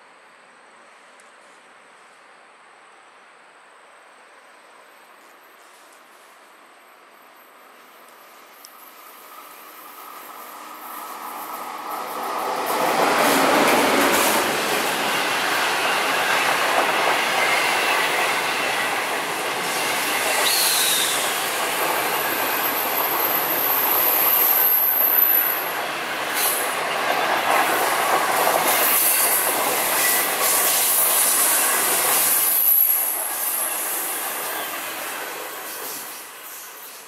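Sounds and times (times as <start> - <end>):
train wheels rumbling on rail: 7.7 - 37.0.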